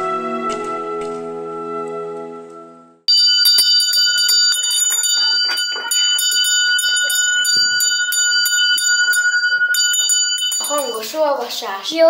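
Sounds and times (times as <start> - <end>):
background music: 0.0 - 3.0
school bell ringing rapidly: 3.1 - 12.0.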